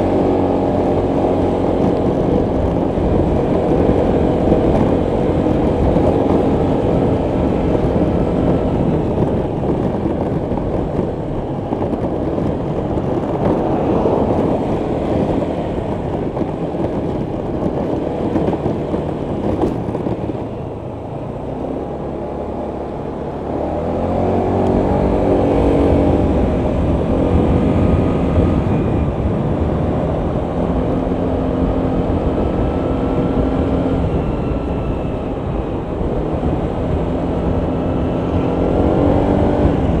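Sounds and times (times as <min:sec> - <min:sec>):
road and wind noise: 0:00.0 - 0:40.0
scooter engine running: 0:00.0 - 0:40.0.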